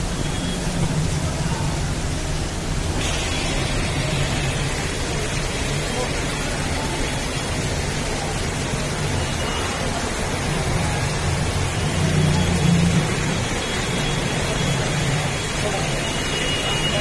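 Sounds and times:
heavy rain into water: 0.0 - 17.0.

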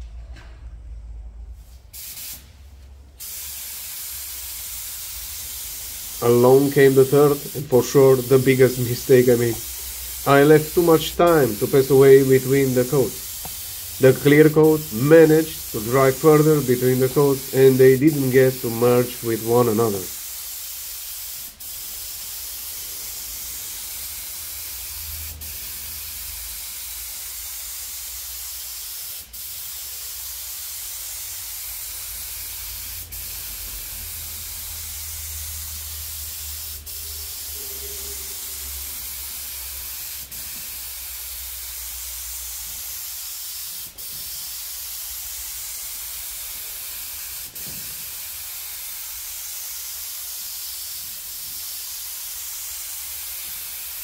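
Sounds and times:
spray gun hissing: 1.6 - 2.5, 3.2 - 54.0
spray gun click: 13.2 - 13.6.

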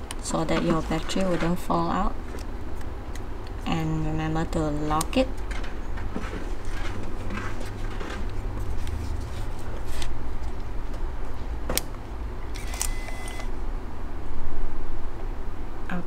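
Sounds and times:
constant low hum: 0.0 - 16.0
camera handling noise: 12.5 - 13.5.

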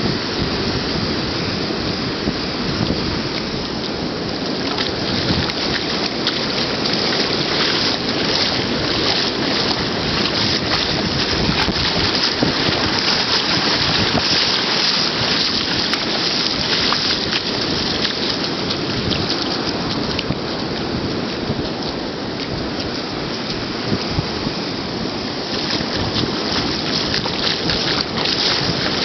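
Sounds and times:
surf washing over sand: 0.0 - 29.0
wind buffeting microphone: 0.0 - 29.0
bare feet splashing in water: 2.8 - 29.0.

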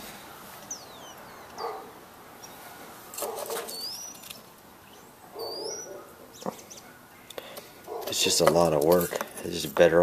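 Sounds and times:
bird calls with rising chirp: 0.2 - 1.8, 3.5 - 6.9.

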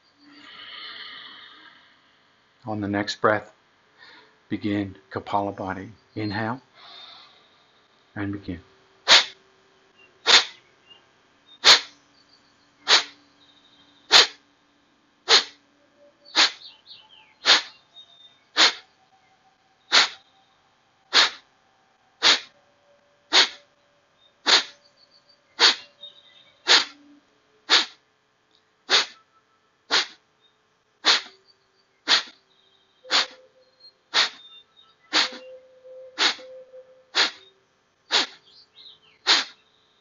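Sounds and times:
forceful nasal exhalations: 0.3 - 1.8, 4.0 - 4.3, 9.1 - 9.4, 10.3 - 10.6, 11.6 - 11.9, 12.9 - 13.2, 14.1 - 14.4, 15.3 - 15.6, 16.4 - 16.6, 17.4 - 17.7, 18.6 - 18.8, 19.9 - 20.2, 21.1 - 21.4, 22.2 - 22.5, 23.3 - 23.6, 24.4 - 24.8, 25.6 - 25.8, 26.7 - 27.0, 27.7 - 28.0, 28.9 - 29.2, 29.9 - 30.2, 31.0 - 31.4, 32.1 - 32.4, 33.1 - 33.4, 34.1 - 34.4, 35.1 - 35.4, 36.2 - 36.5, 37.1 - 37.4, 38.1 - 38.4, 39.3 - 39.6.

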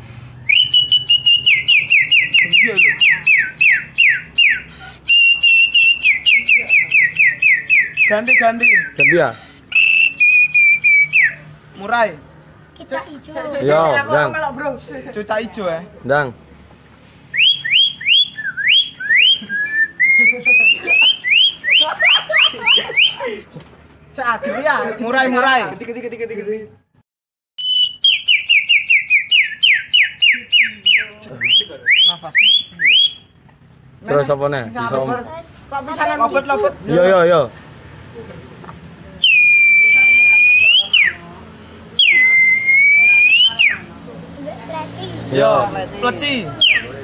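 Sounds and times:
boy whistling birdsong: 0.3 - 11.5, 17.3 - 23.2, 27.6 - 33.4, 39.2 - 41.2, 42.0 - 43.9, 46.6 - 47.0.

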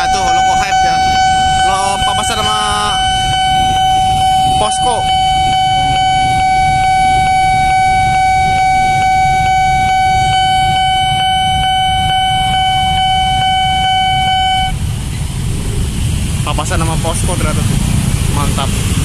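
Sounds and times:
level-crossing warning alarm: 0.0 - 14.9
idling traffic: 0.0 - 19.0
passing train rumble: 0.0 - 19.0.

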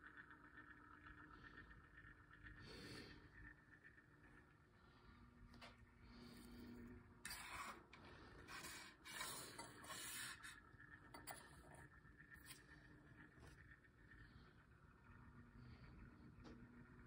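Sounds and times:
hand rubbing and scraping: 6.2 - 13.7.

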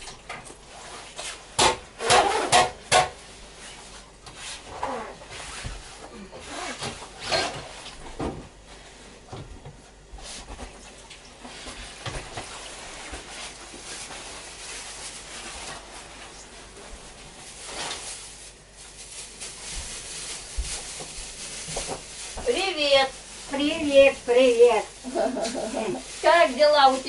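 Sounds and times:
rustling: 11.4 - 27.0.

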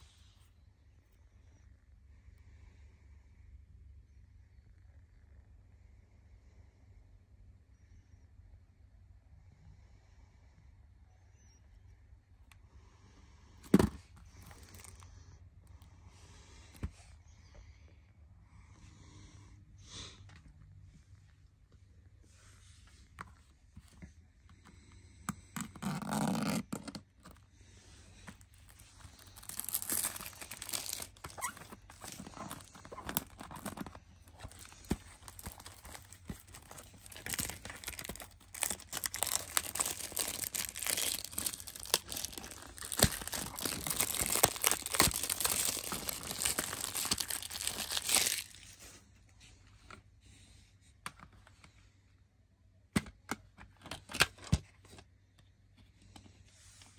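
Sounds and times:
plastic wrap crinkling: 28.1 - 48.8.

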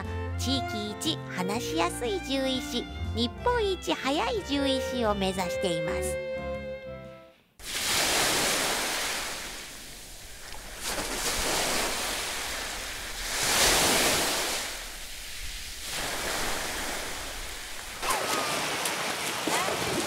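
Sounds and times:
sea surf washing onto a beach: 7.6 - 20.0
swimmer splashing: 7.6 - 20.0.

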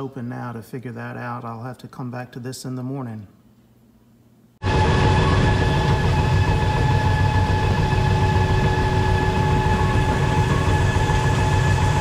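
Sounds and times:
machinery rumble and whine: 4.6 - 12.0.

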